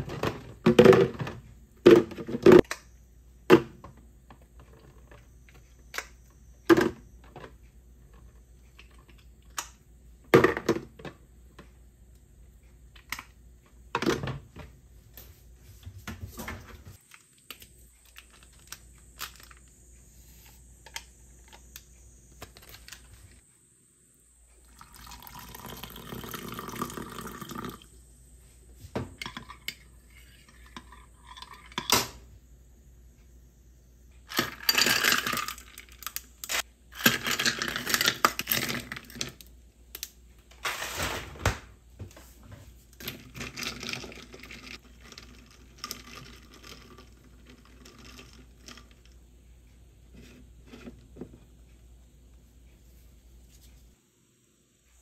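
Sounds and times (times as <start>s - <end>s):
tap water running at a sink: 24.6s - 27.9s.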